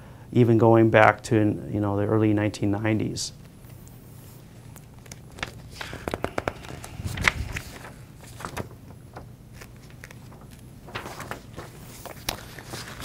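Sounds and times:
faint steady hum: 0.0s - 13.0s
paper rustling and crinkling: 4.3s - 13.0s.

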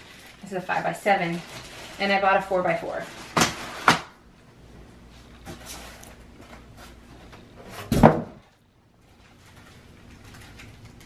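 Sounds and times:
packaging rustling: 0.0s - 4.1s, 9.1s - 11.0s.

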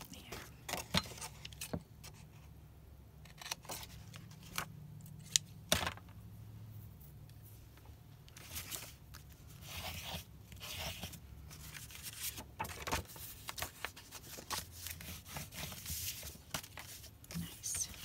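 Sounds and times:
paper rustling and crinkling: 8.3s - 18.0s.

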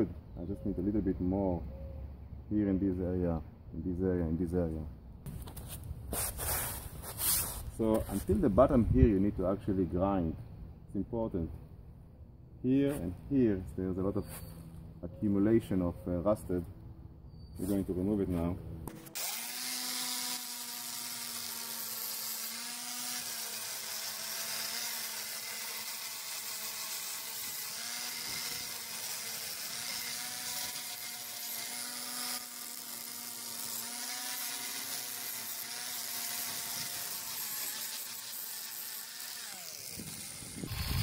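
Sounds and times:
angle grinder grinding metal: 17.6s - 41.0s.

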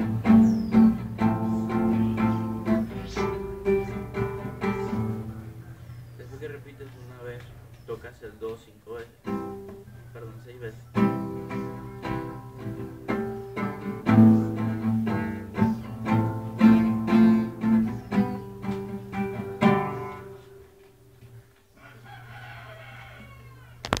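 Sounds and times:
acoustic guitar strumming chords: 0.0s - 5.8s, 8.9s - 21.4s.

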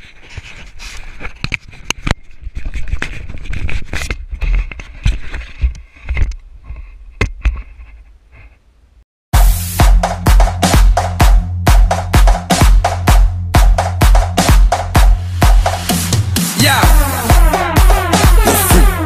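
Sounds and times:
camera handling scrapes and knocks: 0.0s - 8.6s
electronic dance music: 9.4s - 19.0s.

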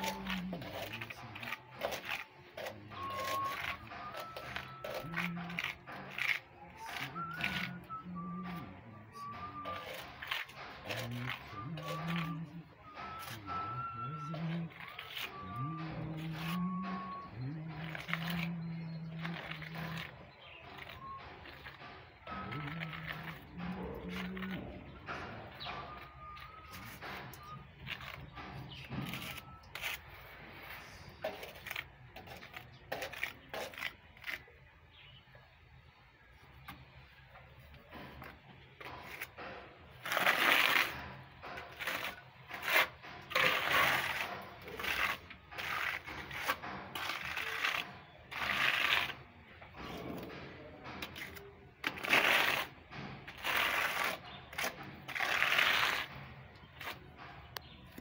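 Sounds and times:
trowel scraping paint on wall: 0.0s - 35.2s, 37.9s - 58.0s.

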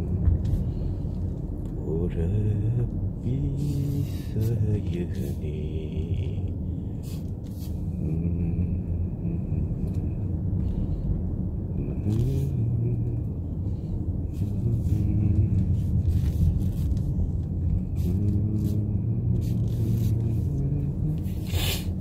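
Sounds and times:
car driving rumble: 0.0s - 22.0s.

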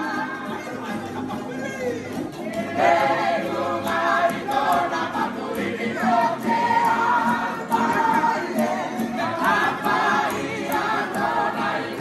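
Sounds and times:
strummed ukuleles and guitars: 0.0s - 12.0s
men singing together: 2.5s - 12.0s.

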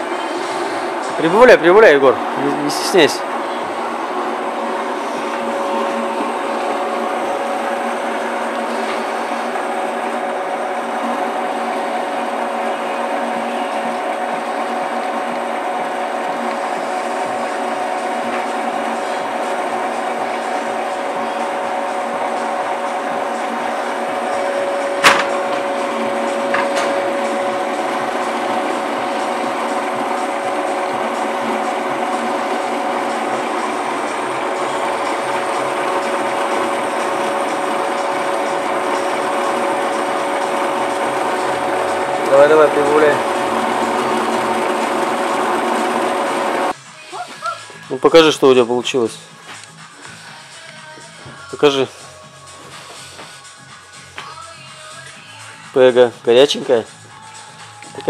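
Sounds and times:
metal lathe humming and whining: 0.0s - 46.8s
cutter turning metal bar: 22.8s - 46.7s.

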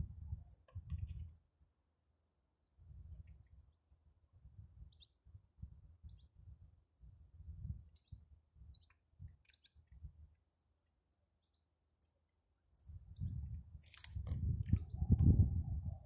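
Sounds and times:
wind buffeting microphone: 0.0s - 1.3s, 12.9s - 16.0s
small birds chirping: 3.1s - 5.3s, 6.0s - 6.8s, 7.5s - 10.4s.

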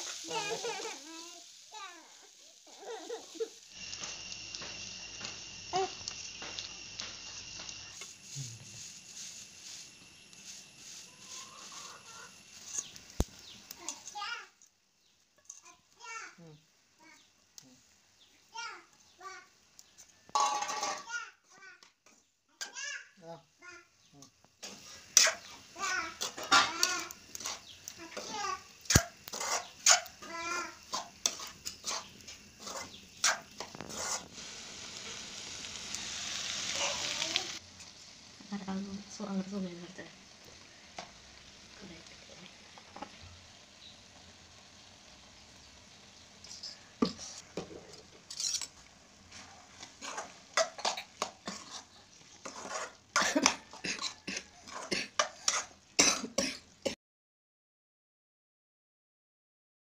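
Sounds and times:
spoon scraping a metal pan: 8.0s - 13.2s, 15.4s - 15.7s, 20.3s - 21.1s, 24.6s - 25.6s, 26.2s - 30.3s, 30.9s - 34.4s, 46.4s - 55.8s.

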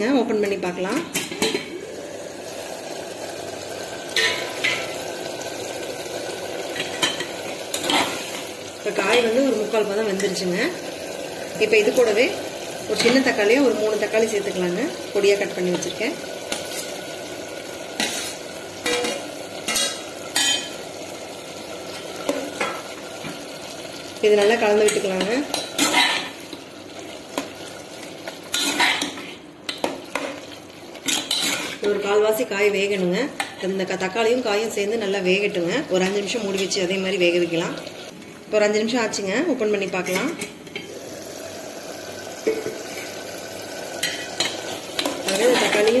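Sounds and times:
low sizzle: 0.0s - 46.0s
metal spoon scraping a pot: 31.0s - 31.9s.

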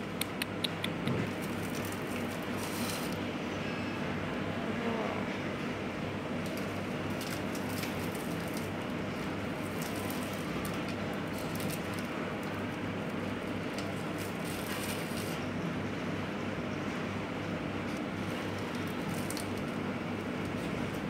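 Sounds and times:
plastic wrapper crinkling: 6.4s - 15.4s, 18.3s - 19.8s.

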